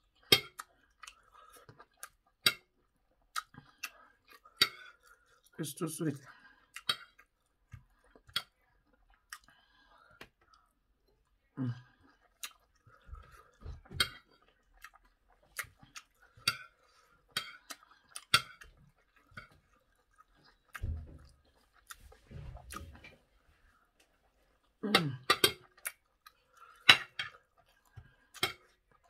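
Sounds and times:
person chewing: 0:00.0 - 0:29.0
mouth clicks and smacks: 0:24.6 - 0:29.0.

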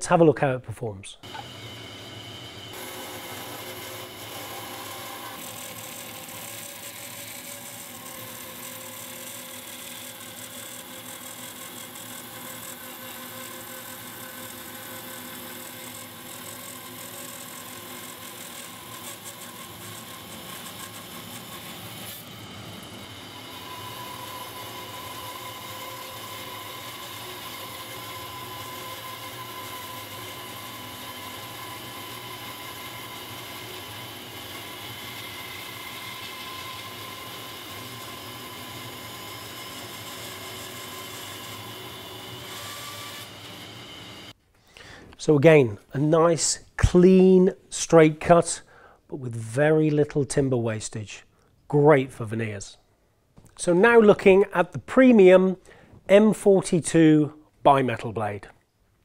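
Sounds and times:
bandsaw cutting hardwood: 0:01.2 - 0:44.4.

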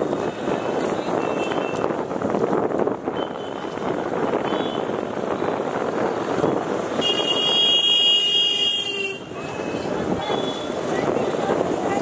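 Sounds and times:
wind on microphone: 0:00.0 - 0:08.0, 0:09.0 - 0:12.0
road and traffic noise: 0:00.0 - 0:12.0
vehicle horn: 0:07.0 - 0:09.3.

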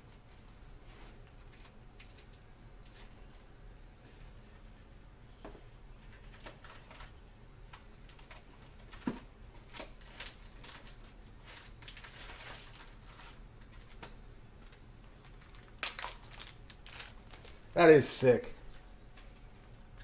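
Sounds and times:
crinkling rustle: 0:06.0 - 0:07.2, 0:08.0 - 0:17.7.

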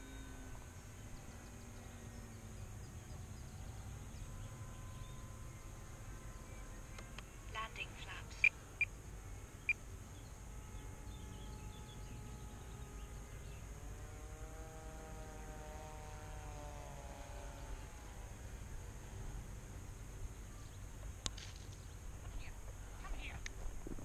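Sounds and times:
faint motor hum: 0:00.0 - 0:24.0
low wind rumble: 0:21.9 - 0:24.0.

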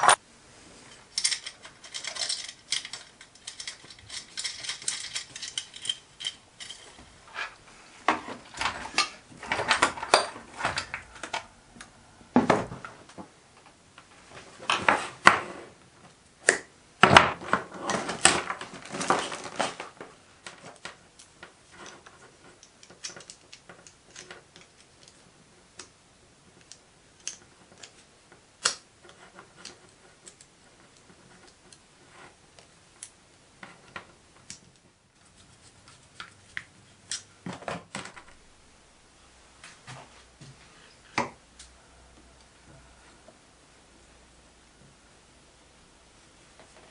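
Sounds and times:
clicks and metallic knocks from tools: 0:00.9 - 0:11.4.

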